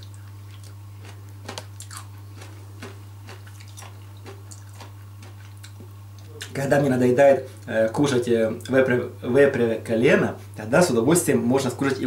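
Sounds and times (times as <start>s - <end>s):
person chewing wetly: 0.0s - 6.6s
steady low hum: 0.0s - 12.0s.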